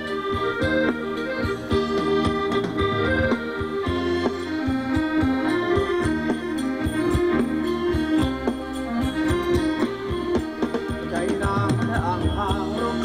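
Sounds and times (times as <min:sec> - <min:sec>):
steady drum beat: 0:00.0 - 0:13.0.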